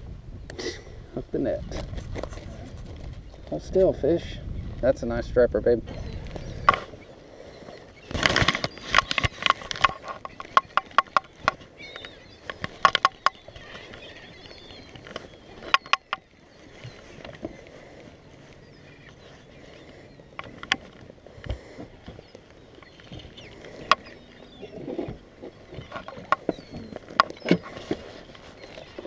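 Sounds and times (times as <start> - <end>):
rough rustle: 6.1 - 29.0
fishing reel clicks and knocks: 12.4 - 13.4.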